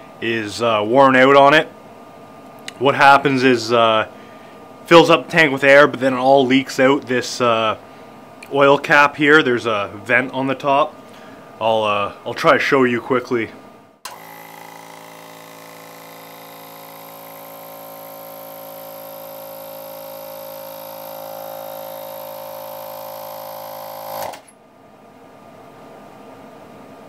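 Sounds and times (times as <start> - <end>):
air compressor pump running: 14.1 - 24.5.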